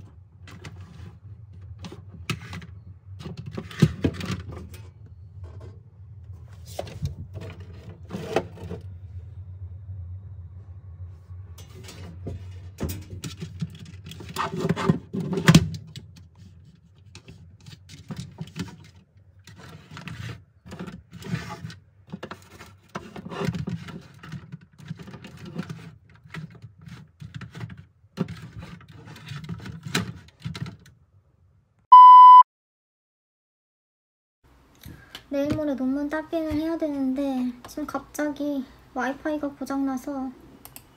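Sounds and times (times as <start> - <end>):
objects being handled: 0.0 - 9.0, 11.6 - 30.9
low hum: 0.0 - 14.0
electronic beep: 31.9 - 32.4.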